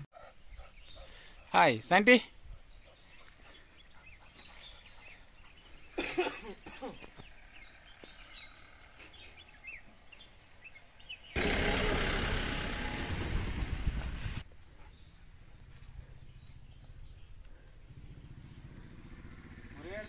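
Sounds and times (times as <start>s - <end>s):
small birds chirping: 0.0s - 11.4s, 14.4s - 20.0s
loud rushing noise: 11.4s - 14.4s.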